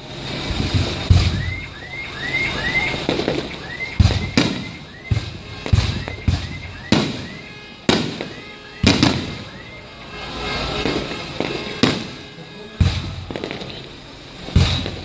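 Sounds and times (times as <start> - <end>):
firework shells bursting: 0.1 - 9.9, 10.6 - 15.0
short rising whistles: 1.2 - 7.5.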